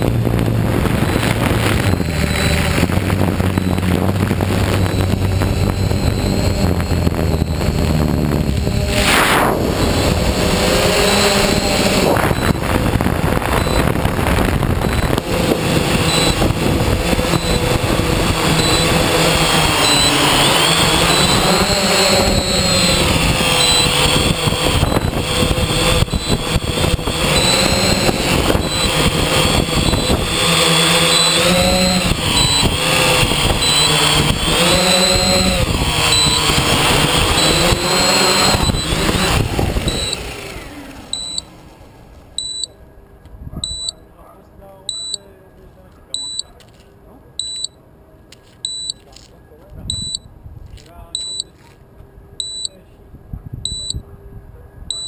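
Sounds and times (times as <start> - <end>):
drone motors and propellers: 0.0 - 44.0, 44.7 - 50.5, 51.1 - 55.0
short high electronic beep: 3.4 - 10.1, 10.9 - 12.8, 13.5 - 14.0, 16.0 - 16.4, 18.6 - 19.0, 19.8 - 24.0, 29.8 - 30.3, 39.8 - 40.2, 41.1 - 41.5, 42.4 - 42.8, 43.6 - 44.0, 44.9 - 45.3, 47.4 - 47.8, 49.9 - 50.3, 51.2 - 51.5, 53.7 - 54.0.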